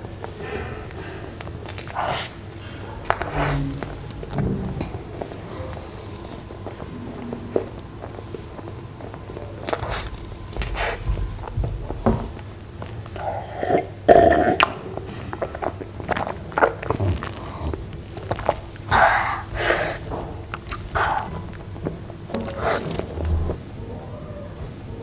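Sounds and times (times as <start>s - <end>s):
wet chewing and smacking: 0.0s - 23.6s
breathy mouth sound: 0.2s - 11.1s, 13.0s - 21.6s
loud gulping swallows: 13.1s - 14.8s.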